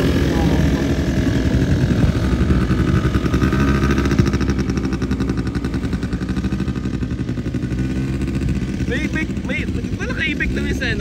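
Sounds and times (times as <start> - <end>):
quad bike engines humming: 0.0 - 11.0.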